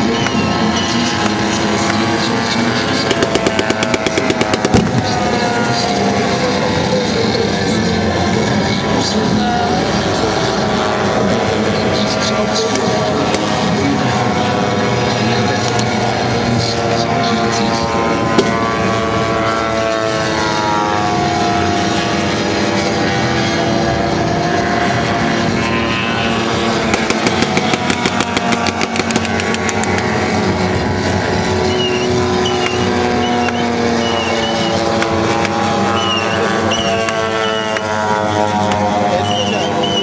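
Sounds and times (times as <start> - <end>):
model aircraft engines droning: 0.0 - 40.0
rapid sharp cracks: 2.9 - 5.2, 26.8 - 30.1.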